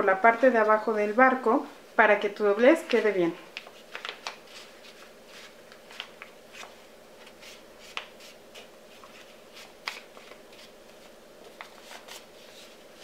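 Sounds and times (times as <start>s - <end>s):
paper rustling and crinkling: 2.8s - 13.0s.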